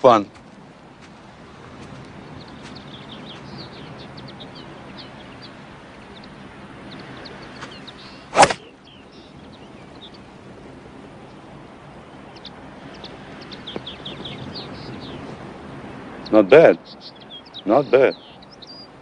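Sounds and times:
birds chirping: 0:00.0 - 0:19.0
golf club swish and hit: 0:07.6 - 0:08.7.

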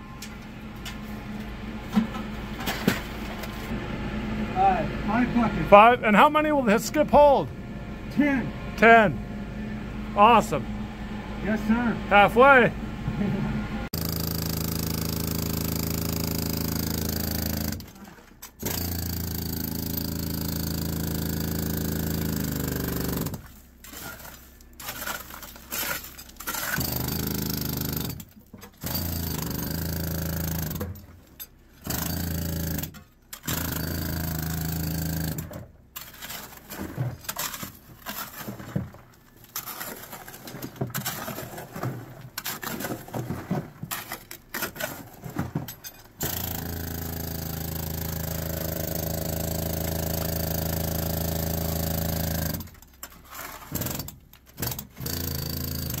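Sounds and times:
mucking machine droning: 0:03.8 - 0:16.7.

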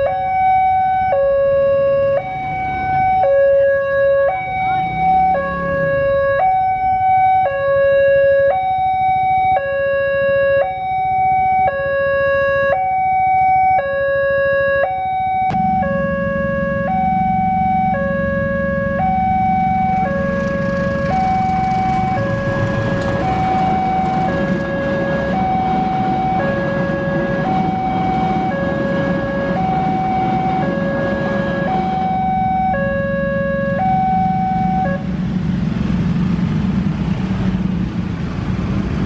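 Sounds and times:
level crossing two-tone alarm: 0:00.0 - 0:35.0
diesel locomotive rumble: 0:15.1 - 0:39.0
train wheels rushing on rails: 0:20.2 - 0:31.9.

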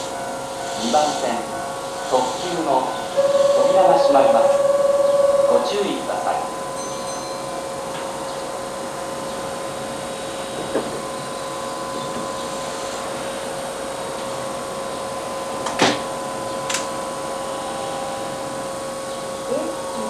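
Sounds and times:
train equipment humming: 0:00.0 - 0:20.0.

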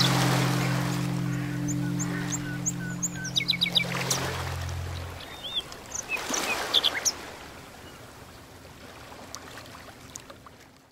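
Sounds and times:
low sustained music notes: 0:00.0 - 0:07.0
water rushing: 0:00.0 - 0:09.2.

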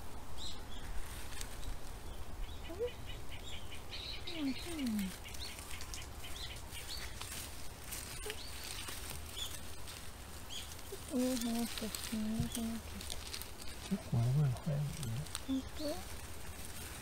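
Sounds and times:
small birds chirping: 0:00.0 - 0:17.0
hands digging in soil: 0:04.3 - 0:17.0.

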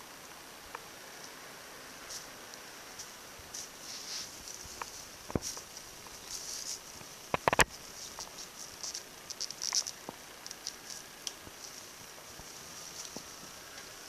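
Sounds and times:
metallic streamers rustling: 0:02.9 - 0:14.0
sharp taps and clicks: 0:07.3 - 0:08.3.

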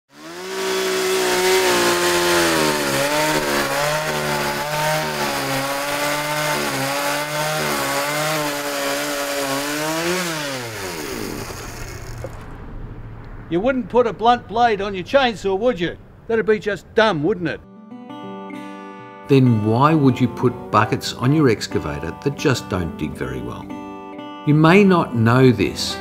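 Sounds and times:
chainsaw cutting into log: 0:00.1 - 0:12.4.

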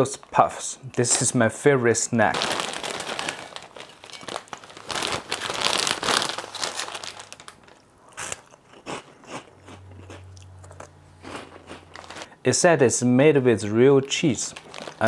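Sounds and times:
snack bag crinkling: 0:02.2 - 0:10.2, 0:10.8 - 0:12.3, 0:14.3 - 0:15.0.

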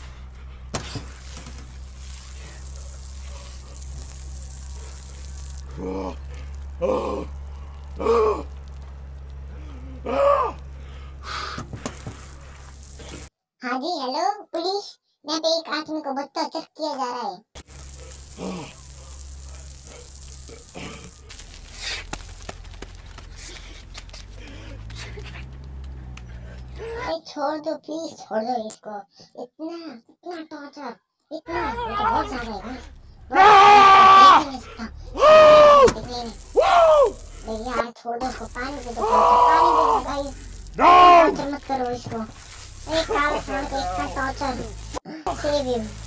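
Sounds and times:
low electrical hum: 0:00.0 - 0:13.3, 0:17.6 - 0:26.6, 0:31.6 - 0:46.0
low hum: 0:00.0 - 0:13.3
shower water running: 0:00.0 - 0:13.3, 0:17.6 - 0:23.3, 0:35.2 - 0:46.0.

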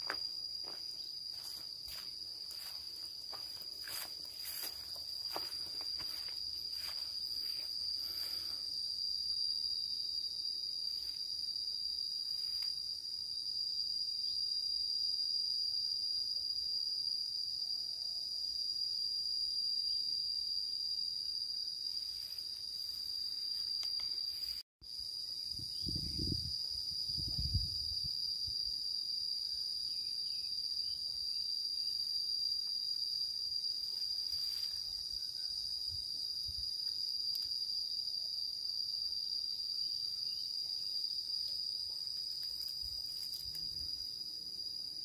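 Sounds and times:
soft footsteps: 0:00.0 - 0:07.8
high-pitched insect chorus: 0:00.0 - 0:45.0.

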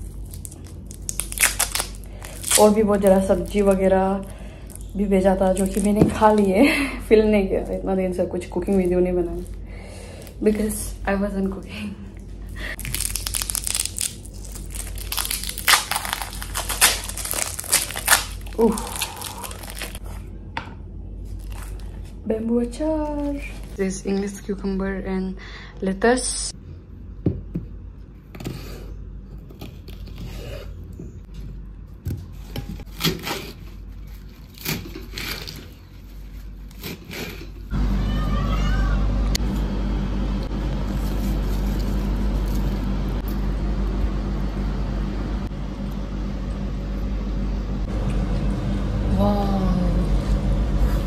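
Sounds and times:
plastic wrapping crinkling: 0:00.0 - 0:06.6, 0:08.4 - 0:10.8, 0:12.6 - 0:20.1, 0:21.3 - 0:22.2.

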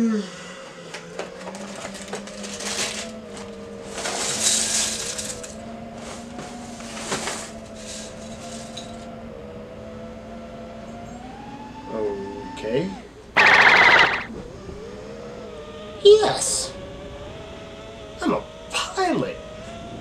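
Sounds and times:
drone motors and propellers whirring: 0:13.4 - 0:15.0.

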